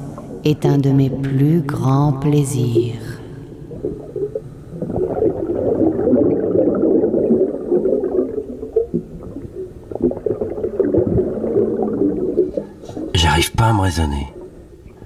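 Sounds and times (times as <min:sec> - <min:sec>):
underwater bubbling and gurgling: 0:02.6 - 0:13.1.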